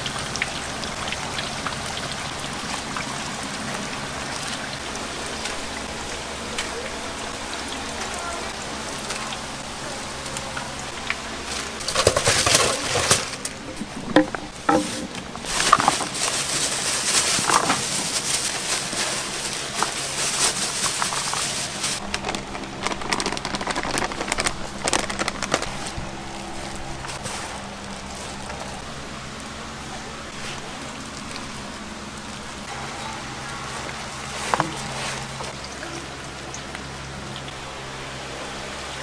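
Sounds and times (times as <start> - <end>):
steady hiss and hum: 0.0 - 39.0
utensils and cookware clattering: 11.4 - 22.0.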